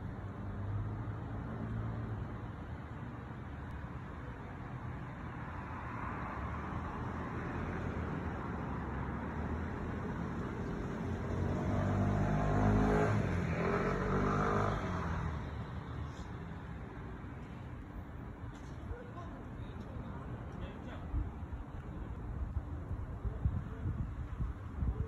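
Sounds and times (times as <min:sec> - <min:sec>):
road traffic hum: 0:00.0 - 0:25.0
car engine accelerating past: 0:10.9 - 0:15.3.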